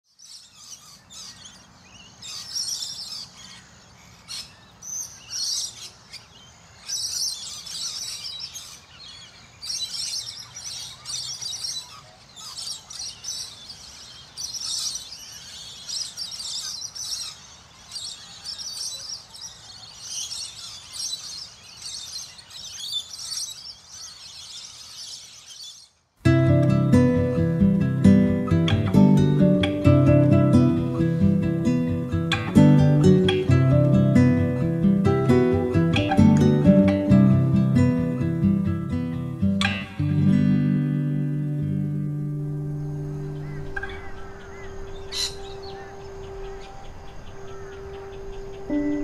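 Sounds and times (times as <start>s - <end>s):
faint outdoor background: 0.0s - 49.0s
birds chirping and singing: 0.1s - 49.0s.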